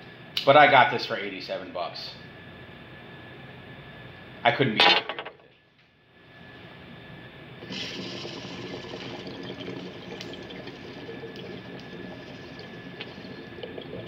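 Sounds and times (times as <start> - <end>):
bong water bubbling: 7.6 - 14.0.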